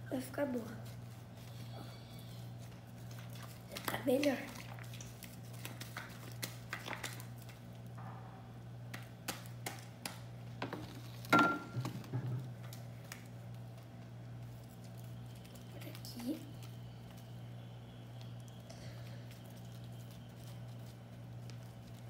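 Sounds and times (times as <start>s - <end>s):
slime squelching: 0.4s - 7.9s.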